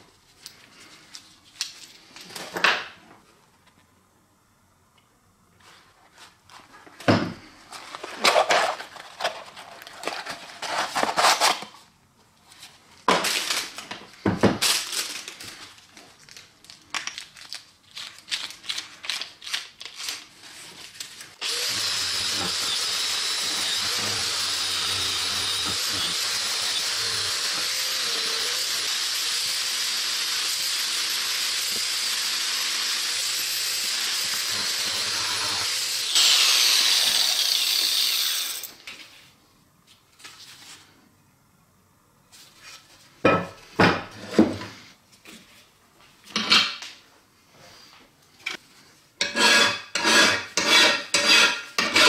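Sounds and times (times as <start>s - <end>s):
angle grinder wire brush whine: 21.4s - 38.7s.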